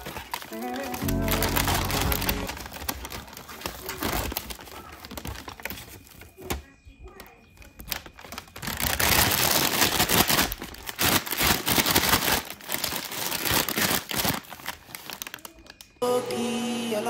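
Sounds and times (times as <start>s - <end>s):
paper bag crinkling: 0.0s - 16.0s
music: 0.5s - 2.6s, 16.0s - 17.0s.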